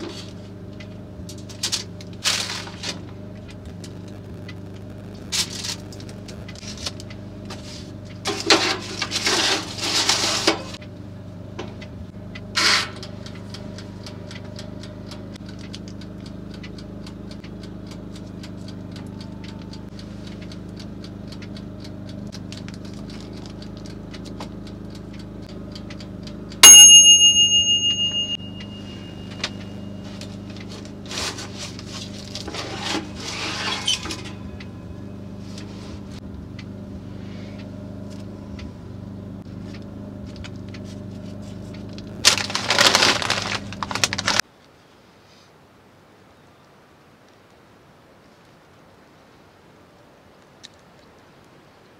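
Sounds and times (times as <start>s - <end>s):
low hum: 0.0s - 44.4s
mechanical timer ticking: 11.7s - 31.0s
timer bell ding: 26.6s - 30.6s
wrapper rustling: 42.2s - 44.4s.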